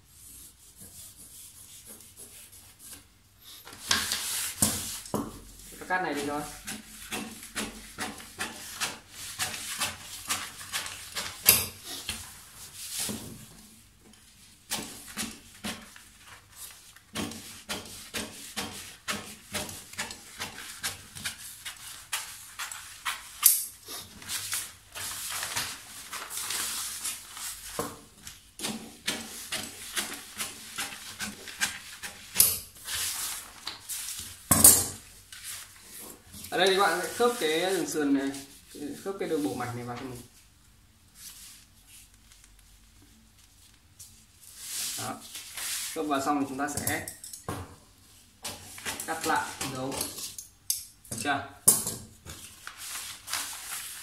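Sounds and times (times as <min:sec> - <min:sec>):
paper rustling: 0:24.0 - 0:34.4, 0:41.2 - 0:46.2, 0:52.2 - 0:54.0.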